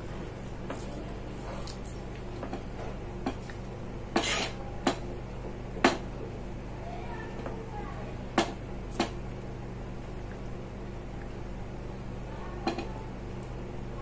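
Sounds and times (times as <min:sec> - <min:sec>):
steady low hum: 0:00.0 - 0:14.0
fingers squelching wet rice: 0:00.2 - 0:02.4.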